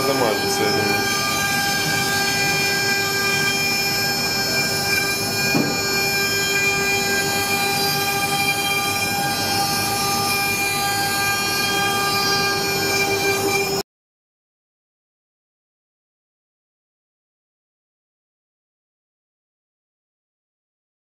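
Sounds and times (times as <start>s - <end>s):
router spindle high whine: 0.0s - 13.8s
rushing noise of cutting wood: 0.0s - 13.8s.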